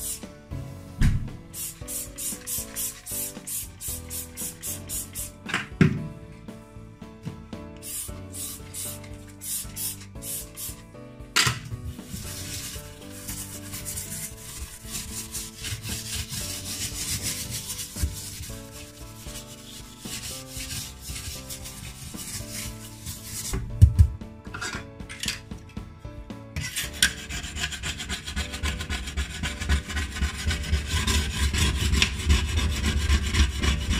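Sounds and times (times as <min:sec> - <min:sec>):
scouring pad scrubbing a hob: 0:11.9 - 0:23.7, 0:26.7 - 0:33.9.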